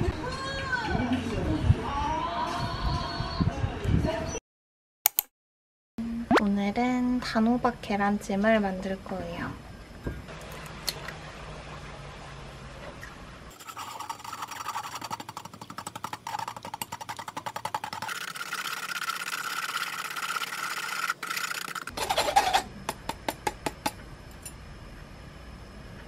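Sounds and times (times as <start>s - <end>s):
chopsticks scraping mesh strainer: 13.5s - 22.7s.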